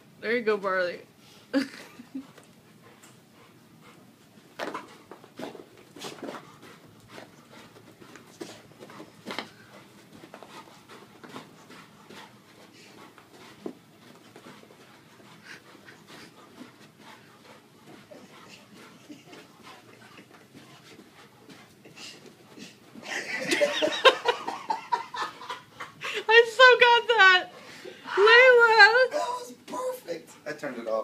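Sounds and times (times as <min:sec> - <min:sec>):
dog paws thumping on carpet: 0:02.1 - 0:23.2.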